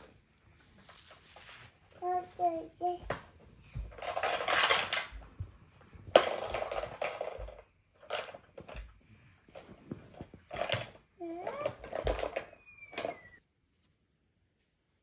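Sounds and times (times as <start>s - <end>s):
rustling: 0.0s - 2.5s.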